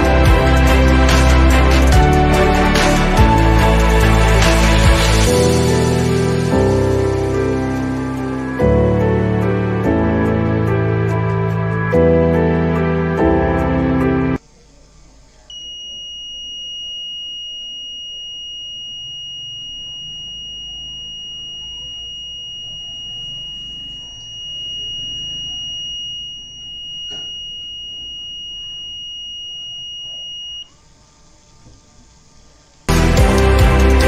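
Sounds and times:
high-pitched buzzer tone: 15.5 - 30.8.

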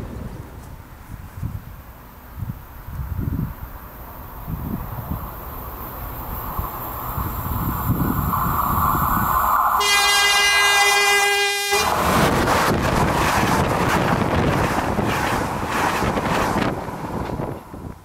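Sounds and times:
train horn: 9.8 - 12.0
train wheels clattering over rails: 11.9 - 18.0.

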